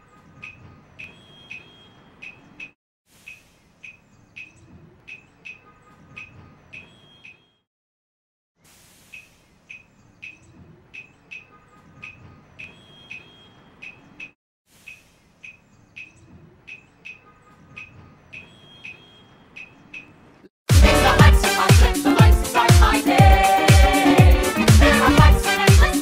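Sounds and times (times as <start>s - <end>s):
faint hiss: 8.6s - 9.8s
loud music: 20.7s - 26.0s.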